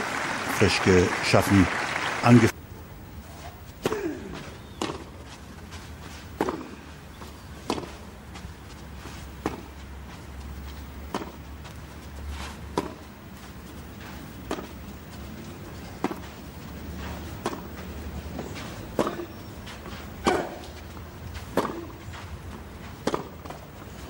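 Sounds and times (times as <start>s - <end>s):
racket hitting tennis ball: 3.8s - 5.2s, 6.4s - 6.8s, 7.6s - 8.1s, 9.2s - 9.8s, 10.8s - 11.4s, 12.6s - 23.7s.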